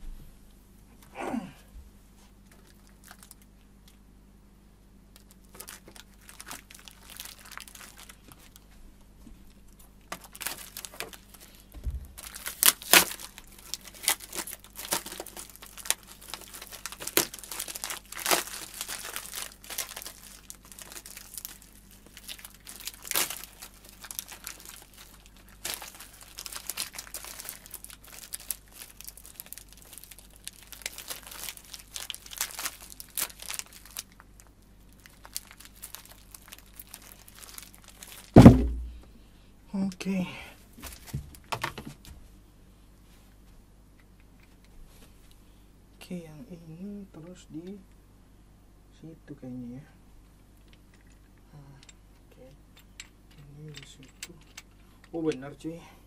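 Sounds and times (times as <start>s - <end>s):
plastic packaging crinkling: 2.4s - 4.0s, 5.1s - 8.7s, 9.4s - 39.0s, 40.8s - 41.9s.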